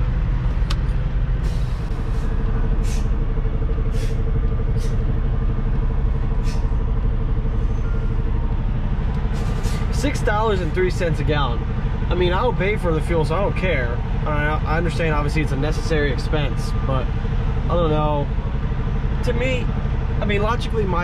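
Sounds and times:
diesel engine humming: 0.0s - 21.0s
short air hisses: 1.4s - 3.2s, 3.9s - 4.2s, 4.8s - 5.0s, 6.4s - 6.8s.

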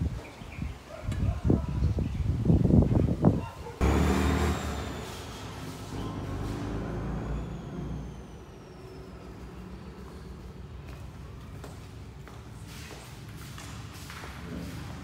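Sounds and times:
road vehicle passing by: 3.8s - 15.0s.

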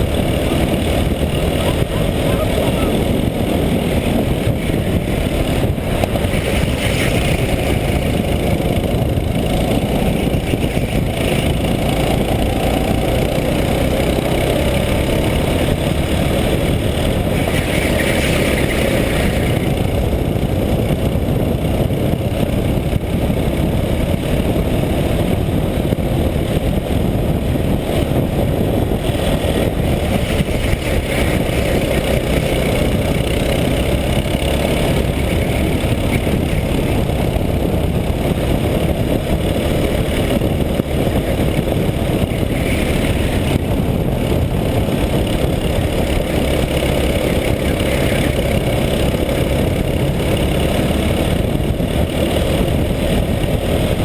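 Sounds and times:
go-kart engine running hard: 0.0s - 54.0s.

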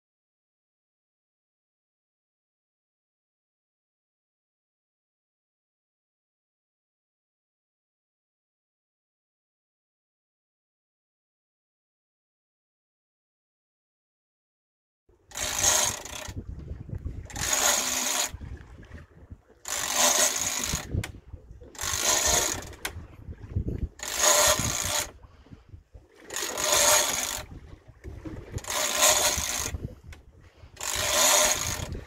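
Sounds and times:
fishing reel buzzing: 15.3s - 16.5s, 17.2s - 18.4s, 19.6s - 21.1s, 21.8s - 22.9s, 24.0s - 25.2s, 26.3s - 27.5s, 28.5s - 29.9s, 30.7s - 32.0s.

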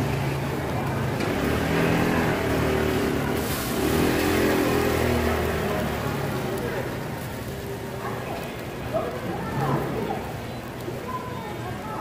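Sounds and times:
vehicle engine revving: 0.0s - 6.6s.

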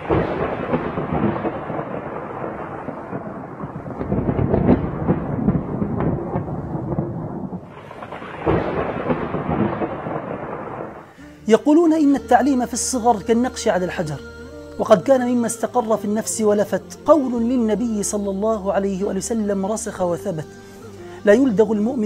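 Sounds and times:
thunder crack and rumble: 0.0s - 11.1s.

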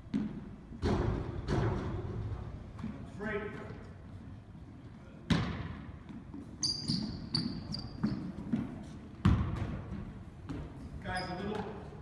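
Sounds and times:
sneaker squeaks: 5.3s - 12.0s
basketball bouncing on hardwood floor: 6.9s - 10.7s.

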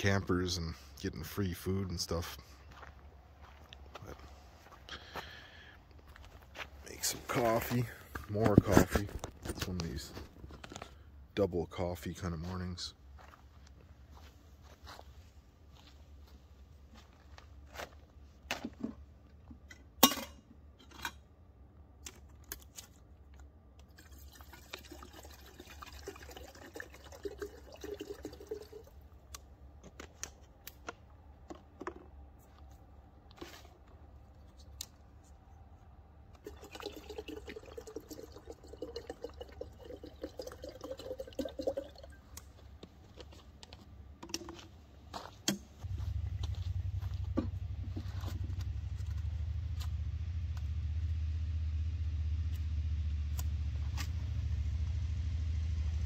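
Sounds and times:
cookware clinking and knocking: 20.0s - 21.1s
water pouring into a vessel: 23.9s - 29.0s, 36.4s - 42.2s.

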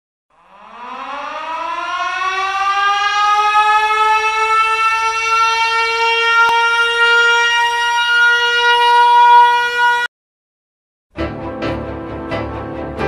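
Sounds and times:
siren wail: 0.3s - 10.1s.

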